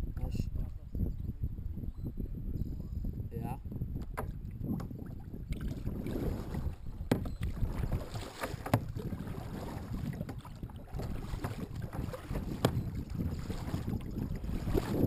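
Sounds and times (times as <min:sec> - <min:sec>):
wind on microphone: 0:00.0 - 0:15.0
paddle splashing in water: 0:04.1 - 0:15.0
sharp knocks: 0:07.1 - 0:07.3.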